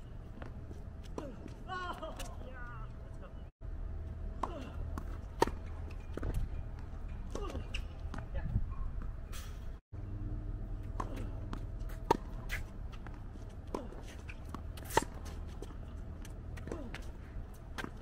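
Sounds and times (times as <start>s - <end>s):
tennis ball strikes: 11.0s - 12.6s
shoe scuffs on hard court: 11.8s - 13.1s.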